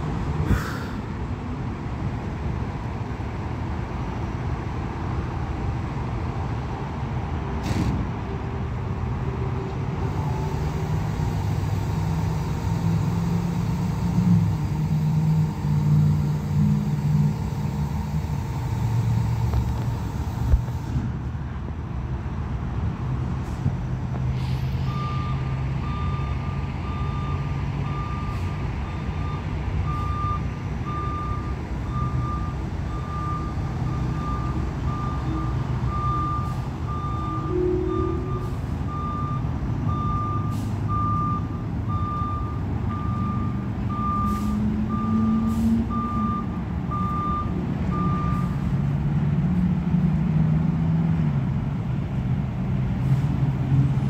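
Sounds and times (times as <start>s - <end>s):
diesel engine idling: 9.9s - 21.5s
truck backup alarm beeping: 10.2s - 20.9s, 24.7s - 48.8s.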